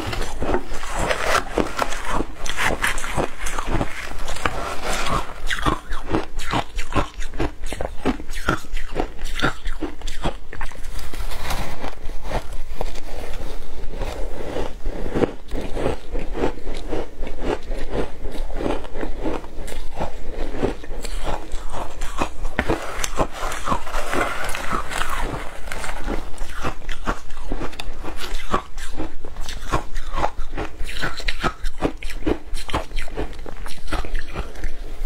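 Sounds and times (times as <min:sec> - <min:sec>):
shaved ice being crunched: 0:22.1 - 0:27.2.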